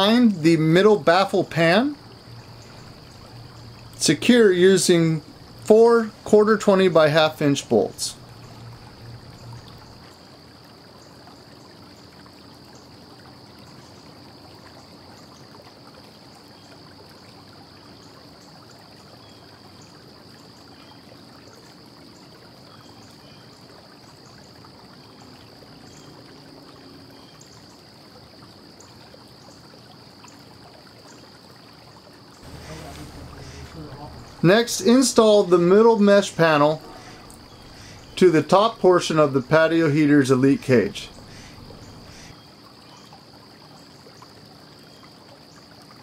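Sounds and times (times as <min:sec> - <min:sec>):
low background hiss: 0:00.0 - 0:46.0
faint high-pitched whine: 0:32.4 - 0:43.1.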